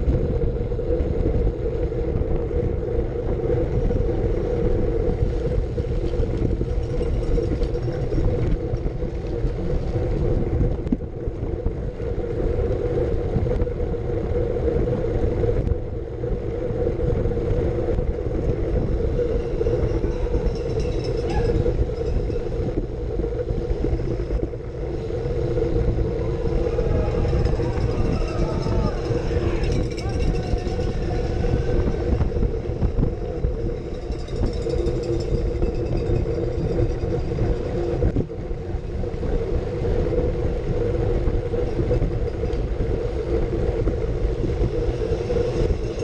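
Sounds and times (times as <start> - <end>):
bike tyres rumbling on tarmac: 0.0 - 46.0
wind buffeting microphone: 0.0 - 46.0.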